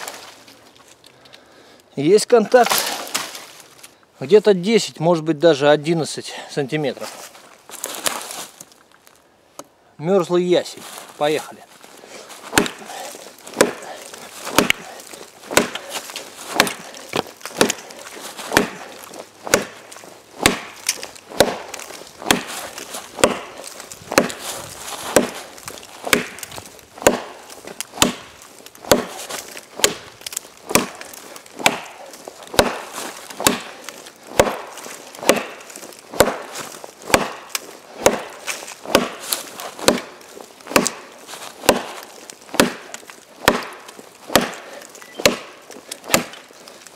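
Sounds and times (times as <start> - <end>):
blade chopping into log: 2.6 - 3.5, 12.4 - 46.5.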